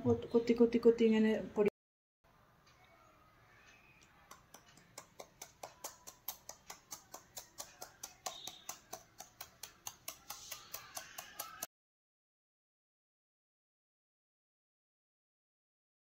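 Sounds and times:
knife chopping: 5.0 - 11.6.

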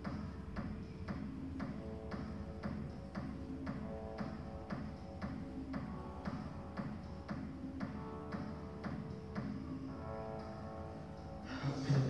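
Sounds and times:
music with steady beat: 0.0 - 12.0.

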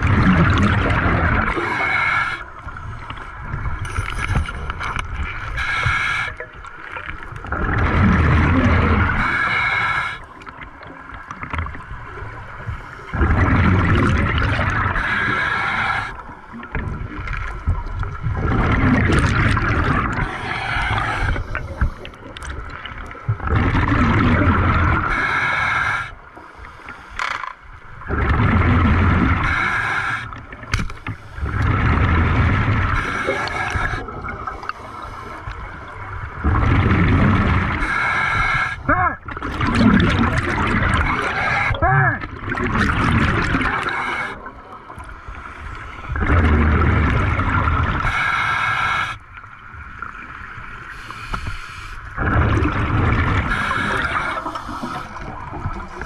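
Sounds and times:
exhaled bubbles burbling: 0.0 - 25.4, 28.0 - 30.8, 31.4 - 34.8, 35.4 - 48.3, 52.1 - 56.0
scuba regulator breath hiss: 1.5 - 2.5, 5.4 - 6.4, 9.2 - 10.3, 14.8 - 16.3, 20.2 - 22.1, 25.1 - 27.2, 29.4 - 31.5, 32.9 - 35.8, 37.8 - 38.9, 43.8 - 44.5, 48.0 - 49.3, 50.9 - 52.1, 53.5 - 55.4.

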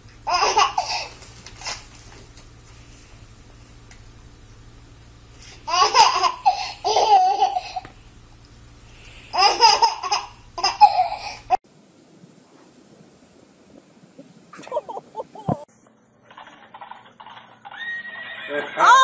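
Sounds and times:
baby giggling: 0.3 - 1.1, 5.7 - 7.9, 9.4 - 11.6, 14.6 - 15.7.

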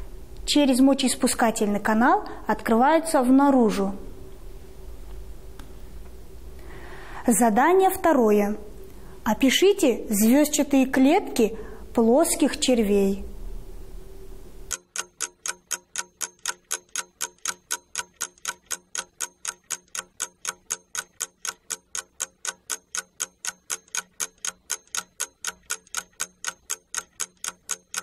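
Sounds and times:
rapid clock ticking: 14.7 - 28.0.

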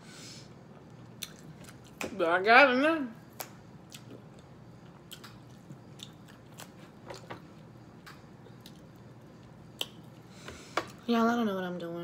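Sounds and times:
person chewing food: 0.7 - 2.0, 3.4 - 7.7, 8.4 - 10.3.

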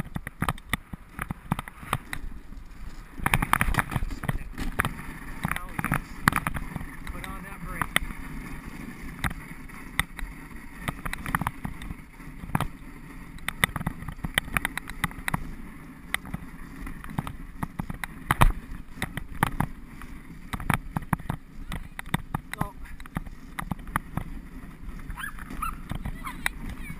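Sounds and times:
sled knocking and clicking: 0.0 - 26.9
sled runners hissing on snow: 1.7 - 21.9.

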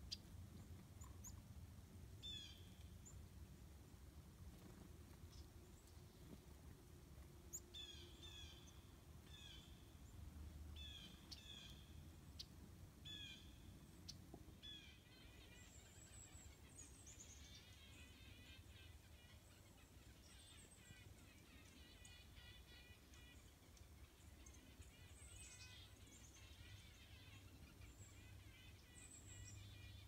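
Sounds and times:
small bird calling: 2.2 - 3.2, 7.5 - 9.9, 13.1 - 30.0.

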